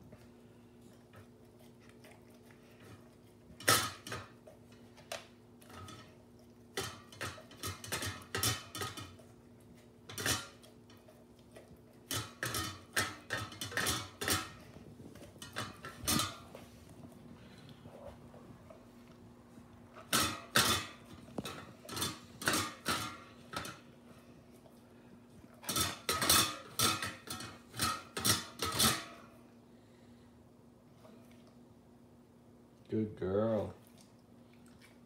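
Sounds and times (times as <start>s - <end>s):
metal bowl clinking and knocking: 6.7s - 9.2s, 10.1s - 10.6s, 12.1s - 14.7s, 15.4s - 16.6s, 19.9s - 23.8s, 25.7s - 29.2s.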